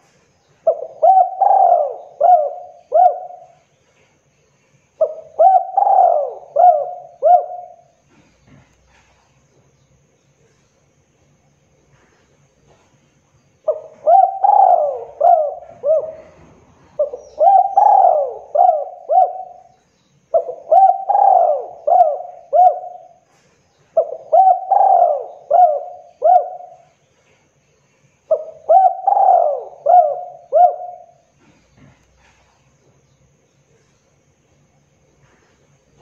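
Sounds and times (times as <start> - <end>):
dove cooing: 0.6 - 3.6, 5.0 - 9.2, 13.6 - 27.0, 28.3 - 32.5.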